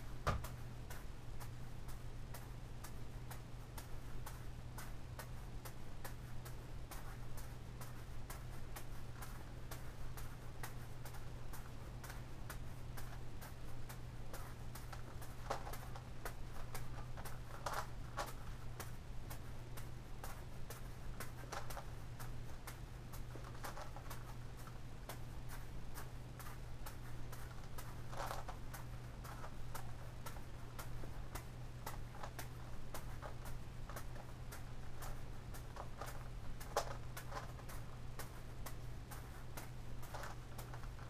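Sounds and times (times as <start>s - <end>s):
juggling balls landing in hands: 0.0s - 41.0s
steady low hum: 0.0s - 41.0s
plastic puzzle clicking and rattling: 23.4s - 24.1s, 27.5s - 28.6s, 35.0s - 37.9s, 40.0s - 41.0s.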